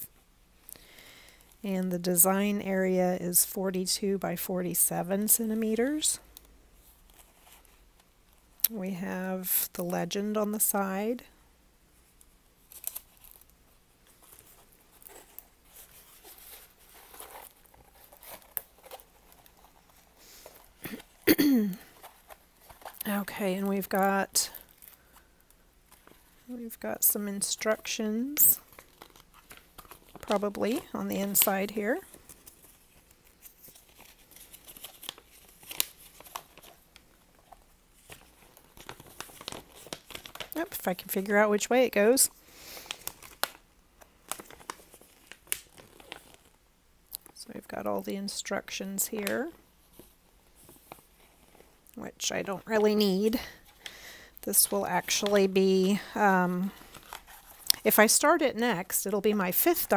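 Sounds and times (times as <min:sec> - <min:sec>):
plastic film crinkling: 0:12.1 - 0:47.4, 0:49.0 - 0:58.3.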